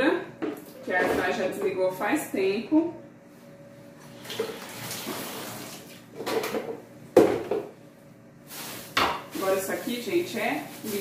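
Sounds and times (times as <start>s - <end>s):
water running from a tap: 4.1s - 6.1s.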